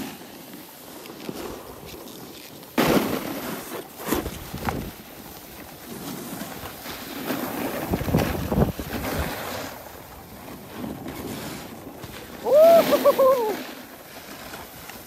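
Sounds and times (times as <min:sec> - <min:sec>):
snowboards scraping on snow: 0:00.0 - 0:15.0
wind buffeting microphone: 0:07.7 - 0:13.6.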